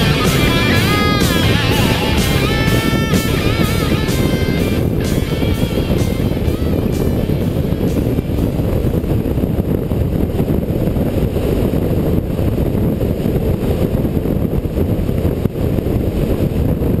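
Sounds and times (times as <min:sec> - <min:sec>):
motorcycle engine running: 0:00.0 - 0:10.2
wind rumble on microphone: 0:00.0 - 0:17.0.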